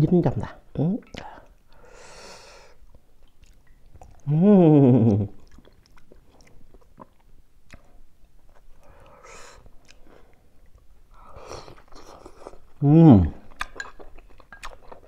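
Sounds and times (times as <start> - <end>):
chewing: 2.9 - 4.3, 5.1 - 12.8, 13.4 - 15.0.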